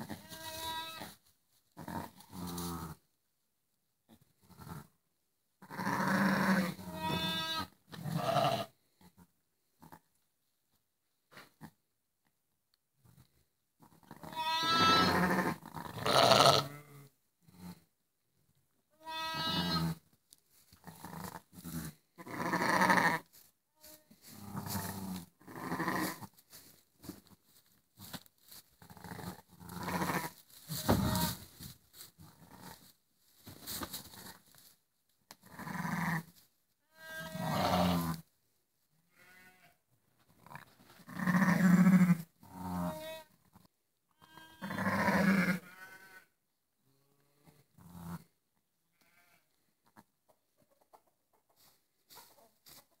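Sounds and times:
sheep bleating: 0.0s - 1.1s, 5.7s - 8.8s, 14.2s - 17.1s, 19.0s - 20.0s, 21.0s - 23.2s, 24.6s - 26.2s, 29.2s - 31.4s, 35.5s - 36.3s, 36.9s - 38.2s, 39.1s - 39.8s, 41.1s - 43.3s, 44.2s - 46.3s, 49.0s - 49.5s.

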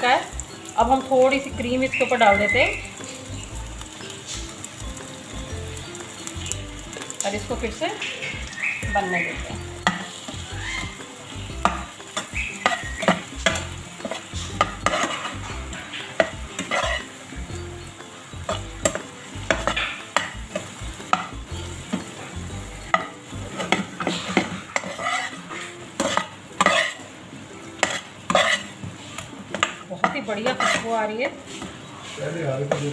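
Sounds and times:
cream sizzling: 0.0s - 32.9s
spatula scraping frying pan: 0.0s - 32.9s.

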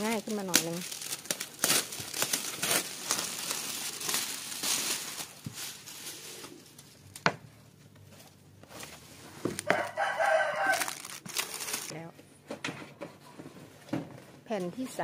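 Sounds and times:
plastic film crinkling: 0.0s - 7.2s, 8.8s - 12.0s
rooster crowing: 9.6s - 11.2s.

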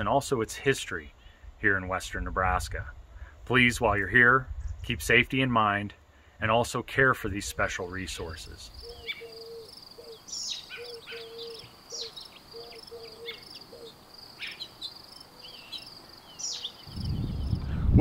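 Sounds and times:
birds chirping: 7.3s - 17.8s
high insect trill: 7.6s - 17.7s.

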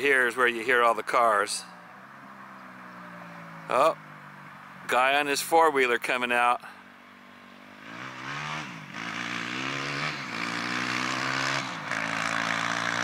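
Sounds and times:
atv engine accelerating: 1.7s - 5.0s, 7.1s - 13.0s.

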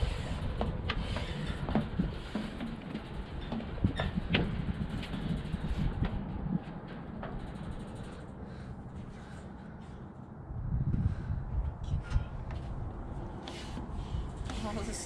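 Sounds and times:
footsteps clanking on stairs: 0.0s - 10.2s
wind rumble on microphone: 0.0s - 15.0s.

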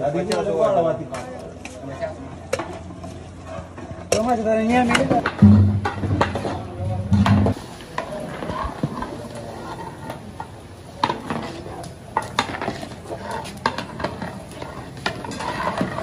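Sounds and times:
ladle stirring wet rice: 4.9s - 16.0s.

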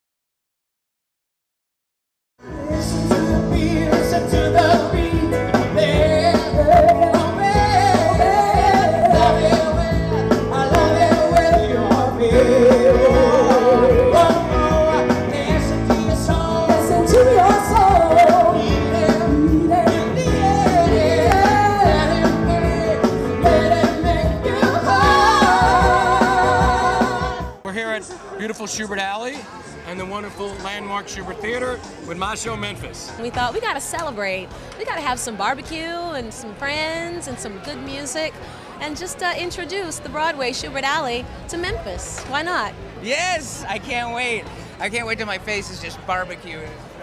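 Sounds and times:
live rock band: 2.4s - 27.6s
man and woman singing: 2.4s - 27.6s.

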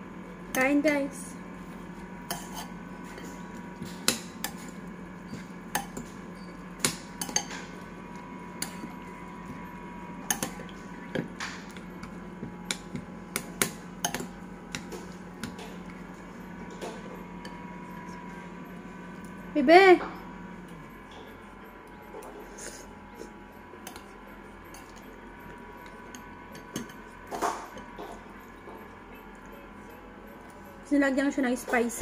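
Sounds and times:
fork and spoon clinking on bowl: 2.3s - 3.3s, 7.2s - 7.7s, 10.3s - 10.8s, 23.8s - 25.1s.

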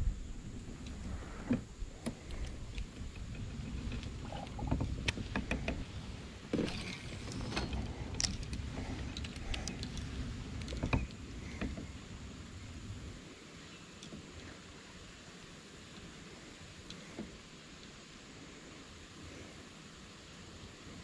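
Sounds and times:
low uneven rumble: 0.0s - 21.0s
clicks and knocks of fishing gear: 0.8s - 11.9s.

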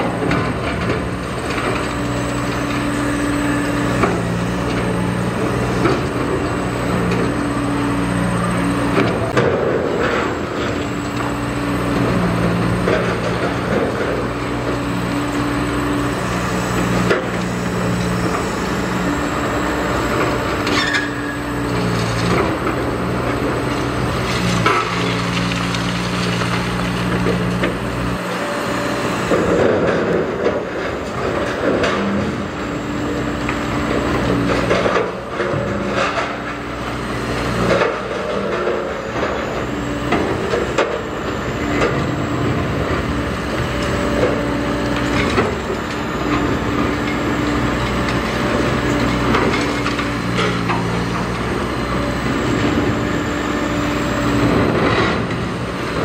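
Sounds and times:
diesel engine under load: 0.0s - 56.0s
concrete crunching and cracking: 8.7s - 28.3s.

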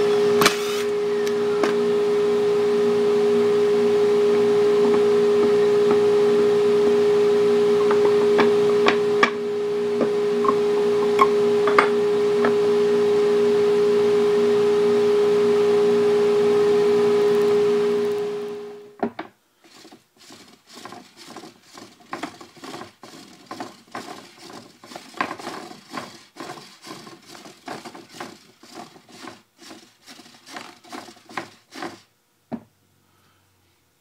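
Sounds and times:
router motor humming: 0.0s - 18.9s
wooden gears knocking: 20.7s - 32.0s.

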